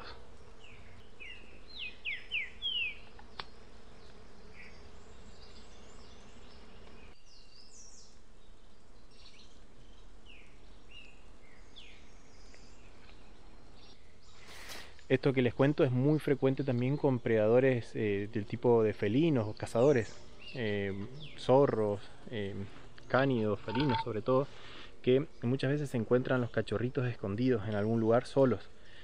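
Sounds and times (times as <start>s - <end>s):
small bird chirping: 0.0s - 15.1s, 19.3s - 22.0s, 22.9s - 24.2s
insect hum: 0.0s - 29.0s.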